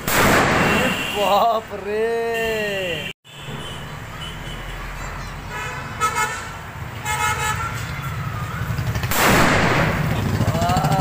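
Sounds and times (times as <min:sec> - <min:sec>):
firecracker going off: 0:00.0 - 0:01.1, 0:09.0 - 0:10.6
car horns honking: 0:00.5 - 0:01.4, 0:02.3 - 0:07.9.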